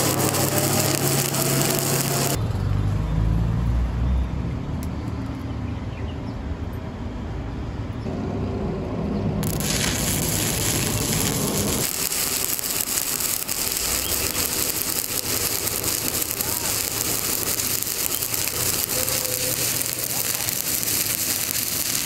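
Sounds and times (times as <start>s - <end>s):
welding arc crackling and sizzling: 0.0s - 2.4s, 9.4s - 22.0s.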